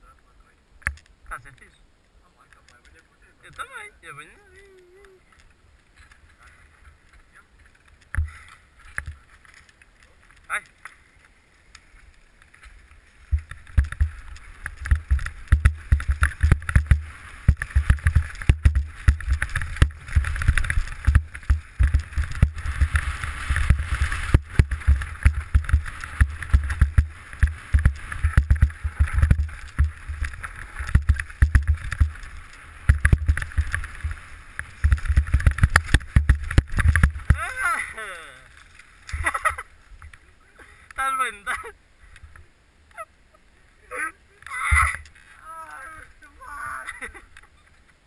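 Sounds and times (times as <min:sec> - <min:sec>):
bike knocking and rattling: 0:07.6 - 0:10.4, 0:12.5 - 0:37.6.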